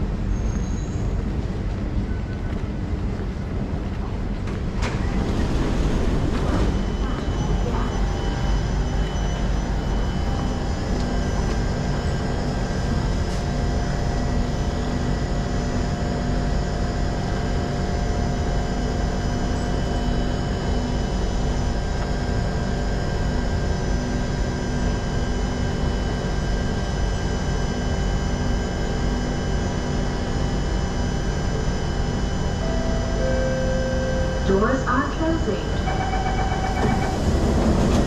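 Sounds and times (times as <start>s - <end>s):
train ventilation hum: 0.0s - 38.0s
faint steady tones: 30.3s - 37.2s.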